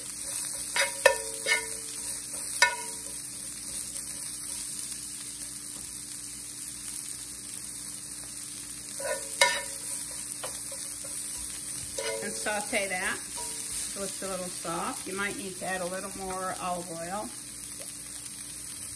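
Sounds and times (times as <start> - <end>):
onions sizzling in a skillet: 0.0 - 18.9
metal tongs clinking on pan: 0.2 - 4.2, 9.0 - 14.0.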